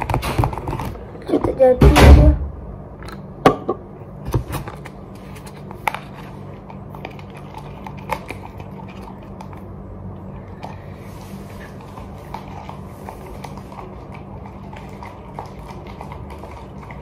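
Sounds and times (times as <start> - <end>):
steady low hum: 0.0 - 17.0
stick stirring slime: 5.3 - 17.0.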